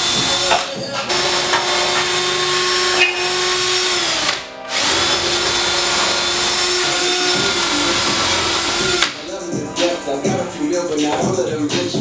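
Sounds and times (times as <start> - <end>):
drill spinning wire brush on metal: 0.0 - 9.0.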